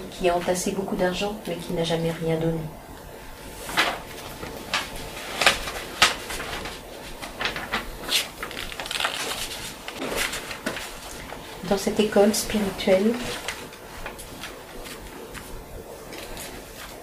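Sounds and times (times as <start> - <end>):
paper sheets rustling: 3.6 - 17.0.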